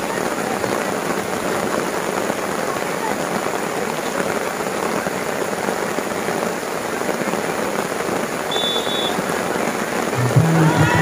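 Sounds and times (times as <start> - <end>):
heavy rain hissing: 0.0 - 11.0
brief high tone: 10.2 - 11.0.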